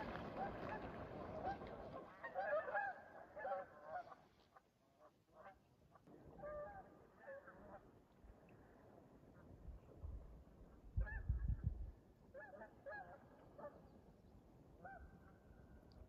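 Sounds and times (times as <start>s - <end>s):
geese honking: 0.0s - 4.3s.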